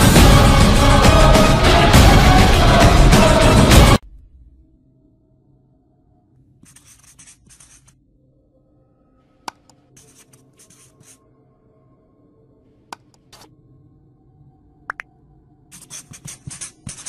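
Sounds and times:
faint soft music: 4.6s - 17.0s
marker pen scribbling on whiteboard: 6.6s - 8.0s, 9.5s - 11.2s, 15.7s - 17.0s.

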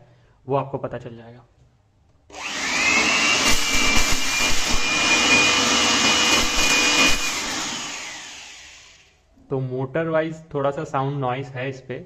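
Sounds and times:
electric blower motor whine: 2.3s - 9.1s.

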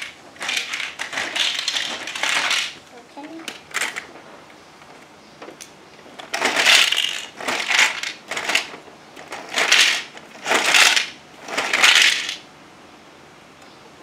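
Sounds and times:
toy cement mixer drum rattling: 0.0s - 2.8s, 3.4s - 4.2s, 6.2s - 12.4s.

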